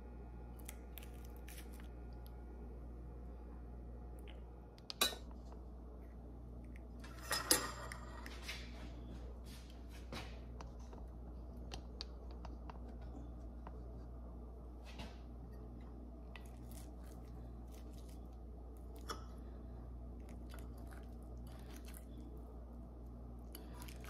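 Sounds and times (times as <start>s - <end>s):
low steady hum: 0.0s - 24.0s
plate and utensils clattering: 7.0s - 8.3s.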